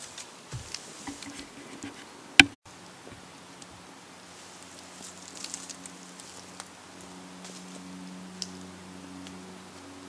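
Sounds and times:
faint ticks and crackles: 2.8 - 10.0.

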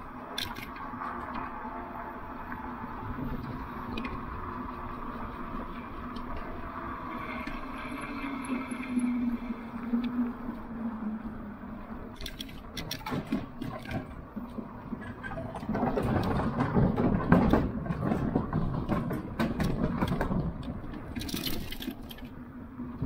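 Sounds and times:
bike tyres rattling over planks: 12.9 - 22.2.

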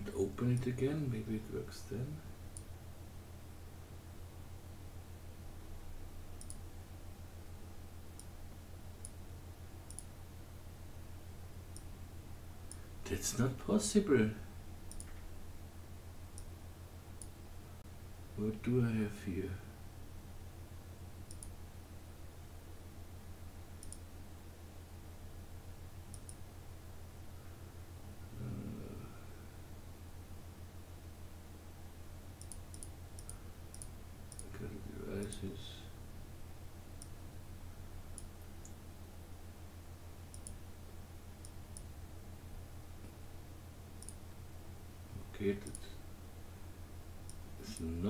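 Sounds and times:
steady low hum: 0.0 - 48.0
computer mouse clicks: 6.4 - 6.6, 9.0 - 9.2, 9.9 - 10.1, 14.9 - 15.3, 21.2 - 21.6, 23.8 - 24.1, 26.1 - 26.4, 32.4 - 34.5, 37.0 - 37.2, 38.1 - 38.8, 40.3 - 40.6, 41.4 - 41.9, 44.0 - 44.2, 45.6 - 45.9.

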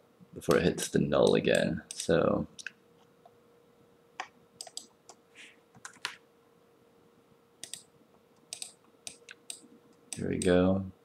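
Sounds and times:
faint steady hum: 0.0 - 11.0
keyboard and mouse clicks: 4.2 - 6.2, 7.6 - 10.6.

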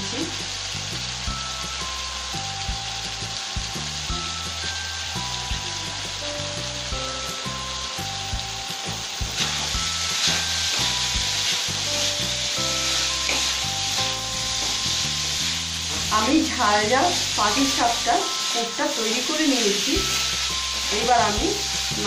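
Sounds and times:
filling sizzling in a pan: 0.0 - 22.0
wooden spatula stirring and scraping: 9.2 - 22.0.

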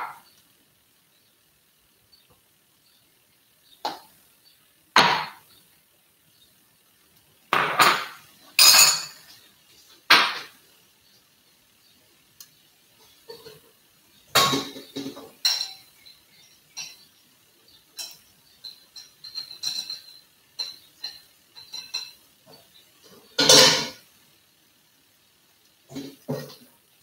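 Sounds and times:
dishes and cutlery clattering: 7.6 - 9.4, 13.2 - 13.7, 14.3 - 16.1, 16.7 - 17.1, 17.9 - 24.0, 25.9 - 26.7.

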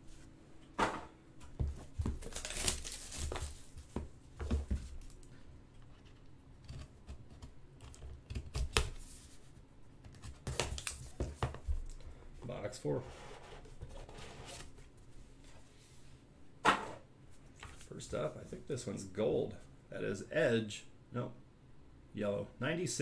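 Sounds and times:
plastic wrap crinkling and tearing: 2.1 - 3.8.

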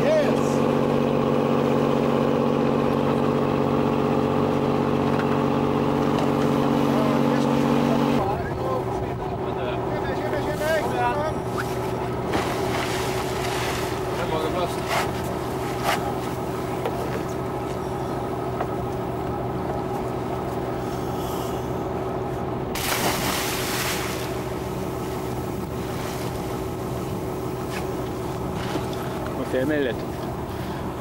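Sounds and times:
boat engine idling: 0.0 - 31.0
diver splashing into water: 22.7 - 24.6.

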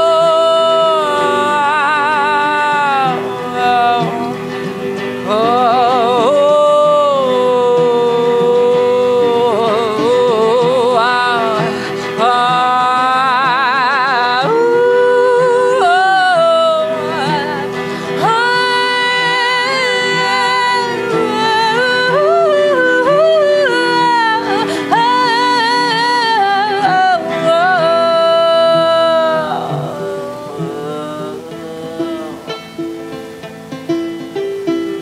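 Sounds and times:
woman singing sustained notes: 0.0 - 33.8
guitar accompaniment: 0.0 - 35.0.

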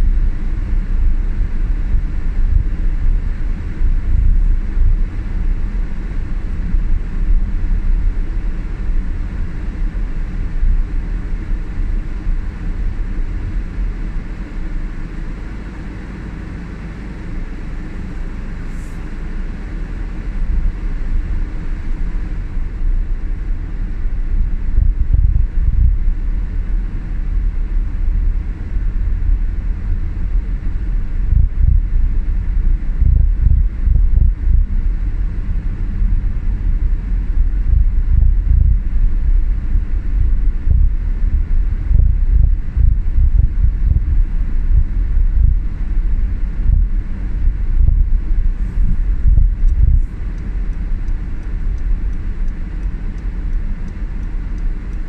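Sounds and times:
car driving on snowy road: 1.2 - 33.7, 43.5 - 55.0.

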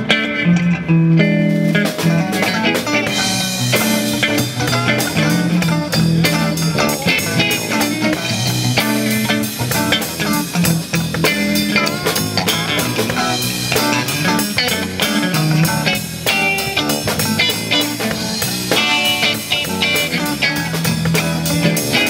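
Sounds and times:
live rock band playing: 0.0 - 22.0
steady drum beat: 1.5 - 22.0.

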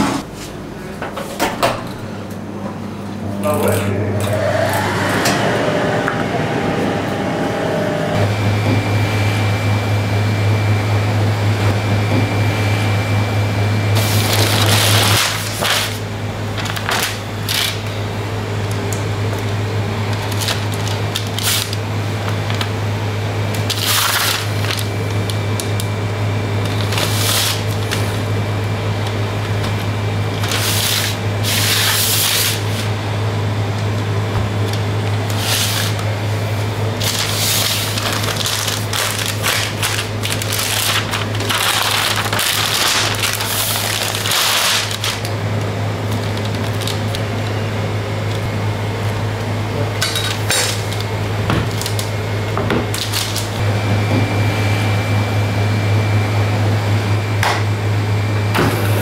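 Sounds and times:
low machine hum: 0.0 - 59.0
wrappers crinkling and rustling: 14.0 - 16.0, 16.6 - 17.8, 20.1 - 21.8, 23.6 - 25.9, 26.6 - 28.1, 37.0 - 45.4, 46.1 - 47.6, 52.8 - 53.6.

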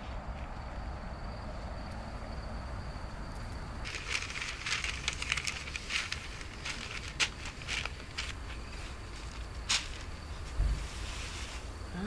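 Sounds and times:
newspaper rustling and crinkling: 3.8 - 11.8.

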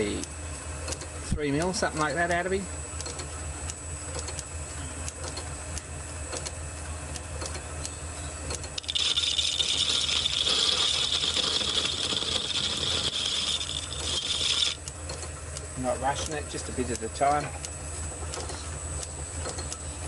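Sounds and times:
lathe humming and rattling: 8.6 - 20.0
high-pitched cutting whine: 8.7 - 14.9.

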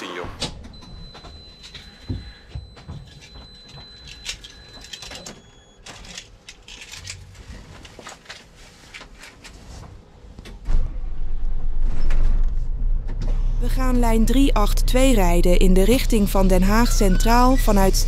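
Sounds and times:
bus engine starting and running: 10.5 - 18.0.

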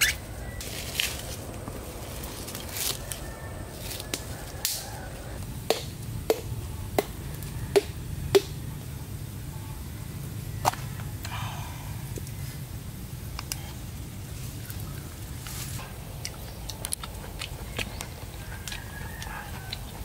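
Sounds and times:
machete chopping coconut: 5.7 - 8.6.

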